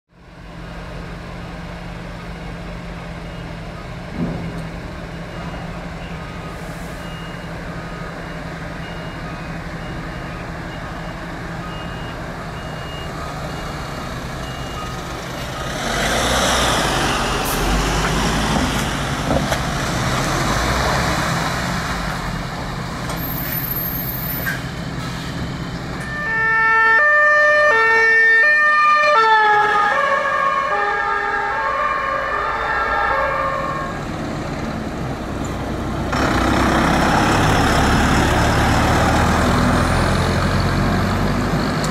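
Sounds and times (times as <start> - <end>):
engine rumble: 0.1 - 26.3, 32.4 - 41.9
loud two-tone siren: 26.0 - 34.1.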